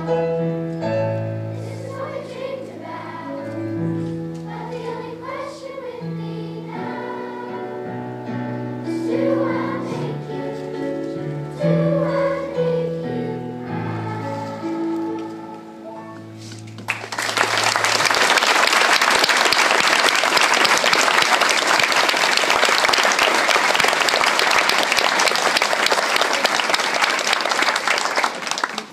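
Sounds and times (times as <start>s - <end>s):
audience applause: 16.8s - 28.9s.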